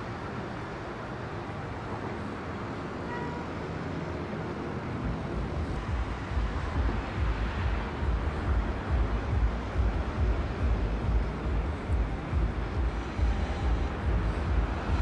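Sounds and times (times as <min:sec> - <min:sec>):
distant city traffic hiss: 0:00.0 - 0:15.0
wind buffeting microphone: 0:05.0 - 0:15.0.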